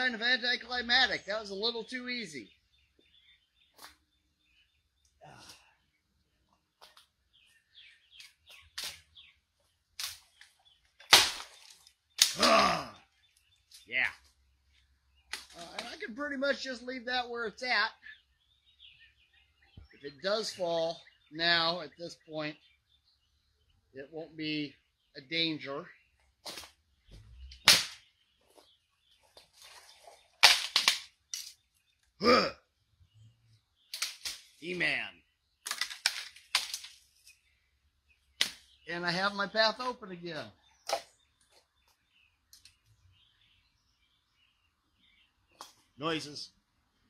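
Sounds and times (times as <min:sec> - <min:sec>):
bird chirps: 0:00.0 - 0:30.4, 0:31.0 - 0:47.0
wood cracking and knocking: 0:10.0 - 0:12.8, 0:15.3 - 0:16.0, 0:29.3 - 0:31.6, 0:35.6 - 0:37.0
loud sharp crack: 0:11.1 - 0:11.6, 0:12.2 - 0:12.8, 0:27.6 - 0:28.0.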